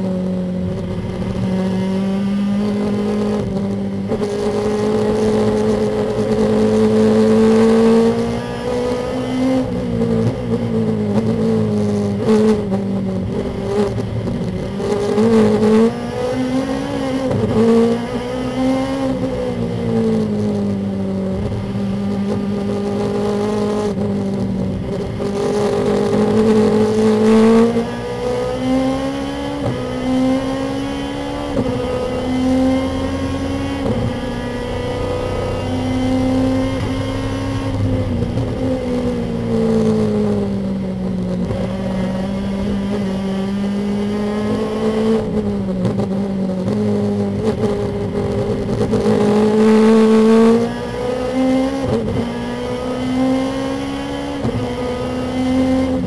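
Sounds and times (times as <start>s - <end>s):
race car engine revving: 0.3s - 56.0s.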